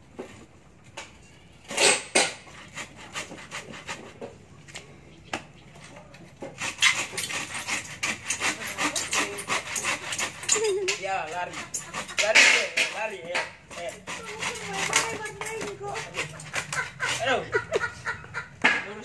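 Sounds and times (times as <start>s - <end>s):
handsaw cutting wood: 1.7s - 4.4s, 6.4s - 18.2s.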